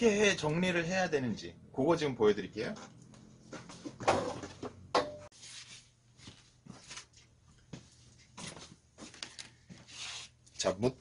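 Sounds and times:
objects clattering: 3.6 - 5.3.

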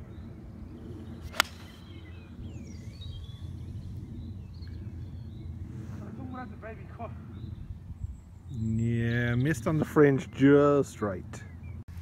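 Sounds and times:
birdsong chirps: 0.0 - 12.0
golf club striking ball: 1.3 - 1.7.

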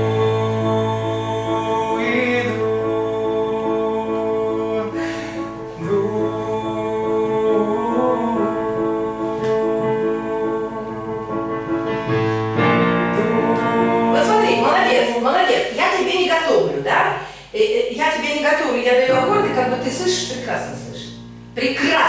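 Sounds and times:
person singing: 0.0 - 15.4
sustained keyboard accompaniment: 0.0 - 15.4, 19.1 - 22.0.

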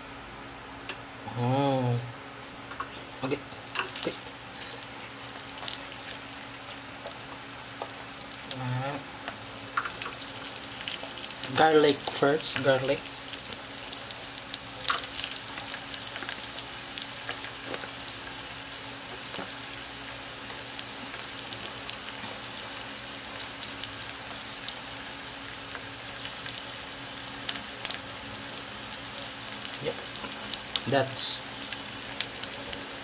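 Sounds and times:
garlic sizzling in oil: 3.3 - 33.0
oil popping and crackling: 9.2 - 33.0.

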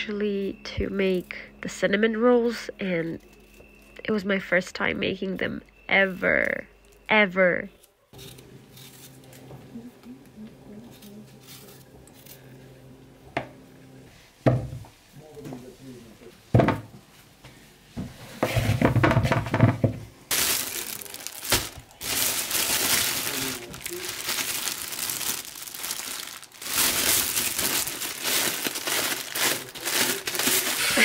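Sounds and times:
plastic bag crinkling: 20.3 - 31.0.

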